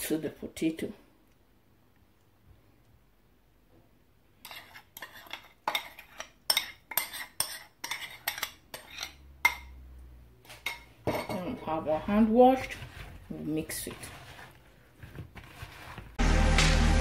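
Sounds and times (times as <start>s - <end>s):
metal spoon scraping a bowl: 4.4s - 9.8s, 10.5s - 14.6s.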